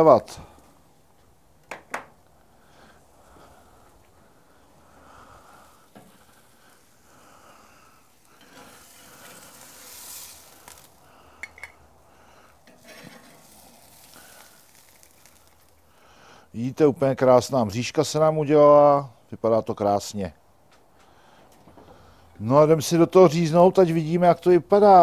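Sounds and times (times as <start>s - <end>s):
fish sizzling on a grill: 5.0s - 16.4s.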